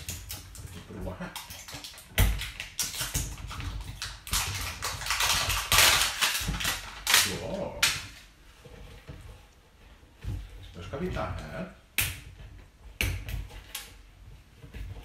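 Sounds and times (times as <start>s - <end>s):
wrapping rustling and crinkling: 0.0s - 11.9s.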